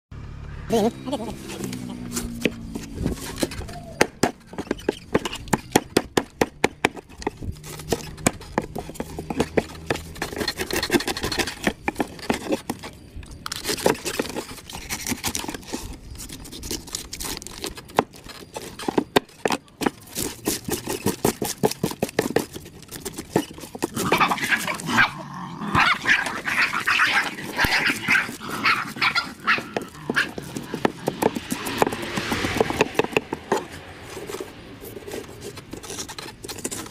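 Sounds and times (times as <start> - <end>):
knife scraping fish scales: 7.1 - 19.0, 26.0 - 36.9.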